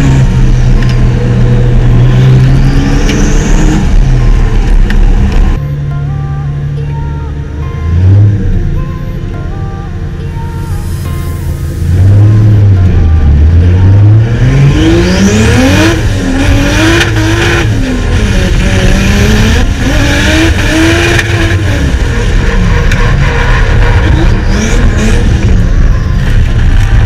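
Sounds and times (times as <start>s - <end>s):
car engine revving hard: 0.0s - 5.6s, 11.6s - 27.0s.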